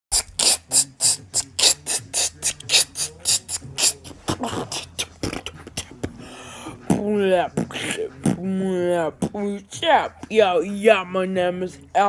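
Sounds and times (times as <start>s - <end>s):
beatbox hi-hat hisses: 0.1s - 4.8s
voiced beatbox sounds: 0.1s - 8.6s.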